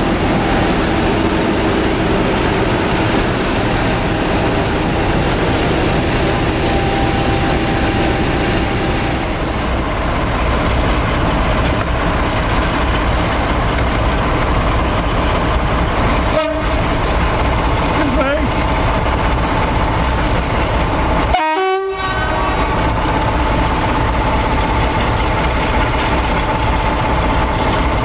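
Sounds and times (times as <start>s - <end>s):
diesel locomotive engine running: 0.0s - 28.0s
second locomotive engine running: 0.0s - 28.0s.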